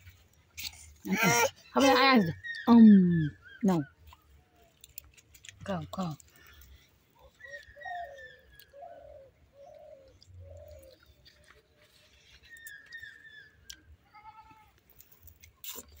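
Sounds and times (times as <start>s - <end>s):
faint dove cooing: 7.4s - 11.7s.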